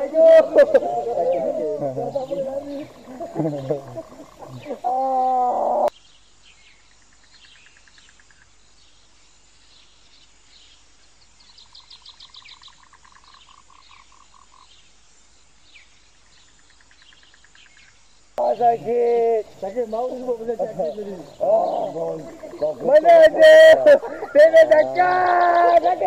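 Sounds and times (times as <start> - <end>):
frogs trilling: 0.0 - 6.0, 11.6 - 14.8, 16.3 - 26.0.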